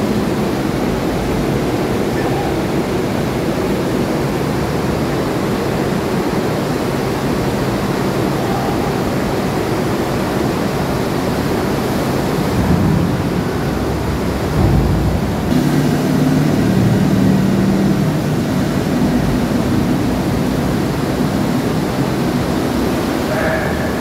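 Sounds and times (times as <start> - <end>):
churned water rushing: 0.0 - 24.0
vehicle engine running: 12.6 - 22.8.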